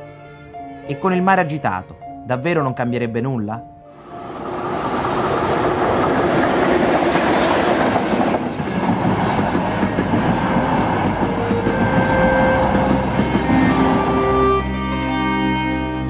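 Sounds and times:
train running over bridge: 3.9 - 15.9
train rushing on rails: 4.0 - 15.7
held musical notes: 9.6 - 16.0.

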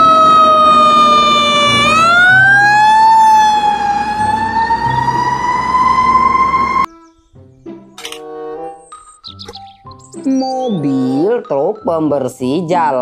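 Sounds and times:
engine and traffic rumble: 0.0 - 6.9
fire engine siren wailing: 0.0 - 6.9.

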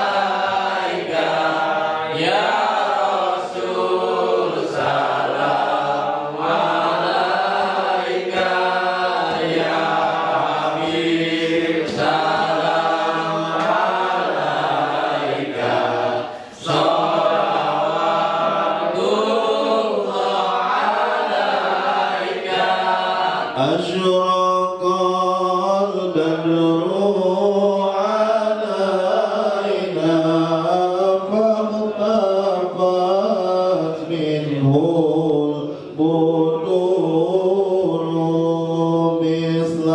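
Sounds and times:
man chanting into a microphone: 23.5 - 39.9.

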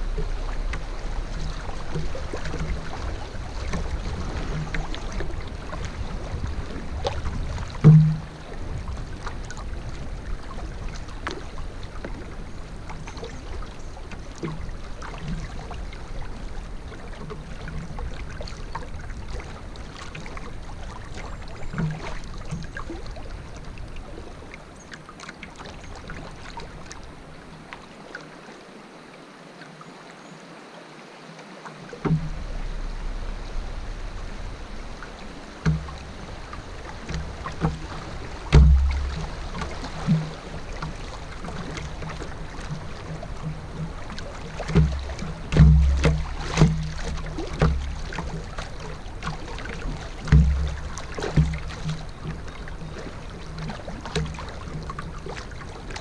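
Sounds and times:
low rumble: 0.0 - 9.3, 32.1 - 41.2
water moving against canoe hull: 0.0 - 28.8, 31.4 - 56.0
heavy thump: 7.8 - 8.4, 32.0 - 35.0, 37.1 - 40.4, 44.8 - 47.0, 50.3 - 51.6
small knocks: 7.8 - 8.4, 32.0 - 33.1, 35.6 - 36.2, 37.0 - 44.0, 44.6 - 48.4, 50.2 - 55.0.

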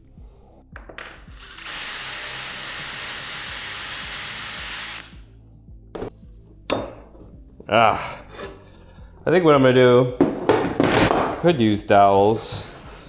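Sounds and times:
cordless drill boring into wood: 1.4 - 5.1.

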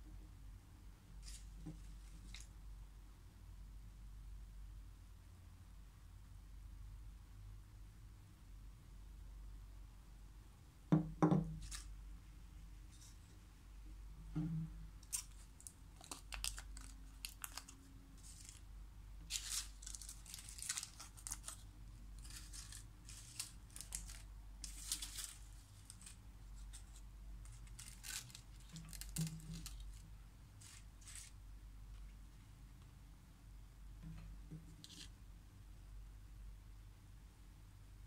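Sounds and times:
foil wrappers crinkling: 15.0 - 31.4.

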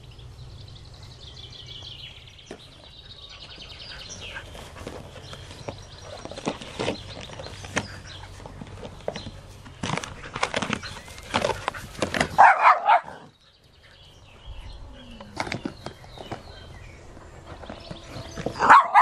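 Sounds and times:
dogs scuffling: 4.1 - 13.0
dog barking: 12.4 - 13.2, 18.6 - 19.0.

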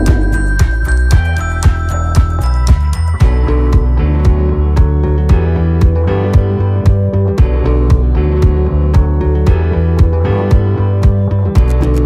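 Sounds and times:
sustained instrumental tones: 0.0 - 1.4
background music with steady beat: 0.0 - 12.0.

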